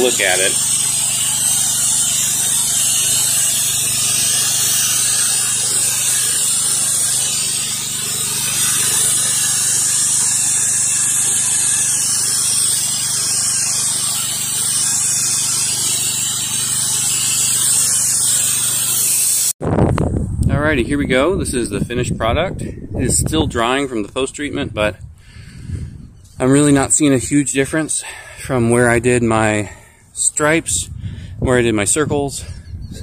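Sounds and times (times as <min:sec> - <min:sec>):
hiss of pressure washer spray: 0:00.0 - 0:19.5.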